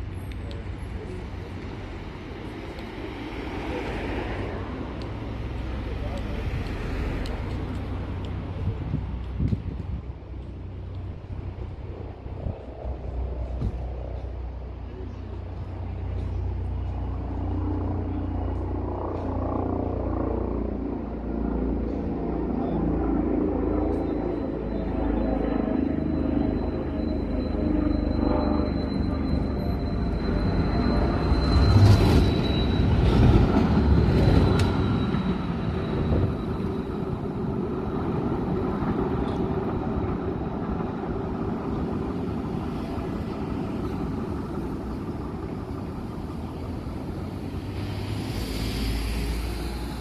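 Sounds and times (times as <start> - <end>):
tram rumbling on rails: 0.0 - 19.4, 23.4 - 50.0
faint high squeal: 23.8 - 50.0
tram clatter: 25.9 - 50.0.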